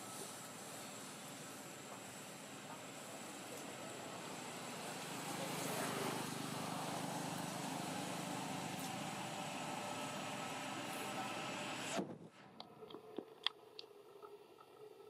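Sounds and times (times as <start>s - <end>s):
motor traffic passing: 0.0s - 12.0s.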